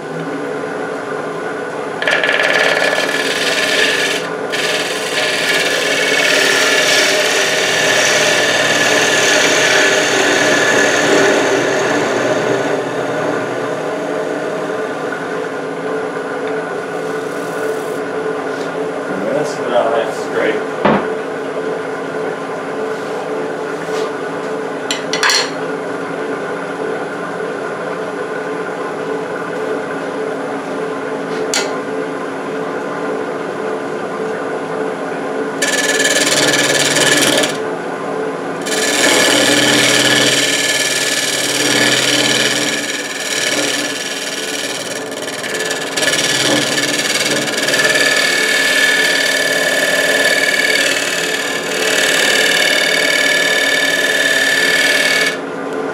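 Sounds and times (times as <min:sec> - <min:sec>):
wood lathe humming: 0:01.6 - 0:15.6, 0:35.6 - 0:37.8, 0:38.6 - 0:55.5
chisel scraping wood: 0:02.0 - 0:12.0, 0:35.6 - 0:37.6, 0:38.7 - 0:55.4.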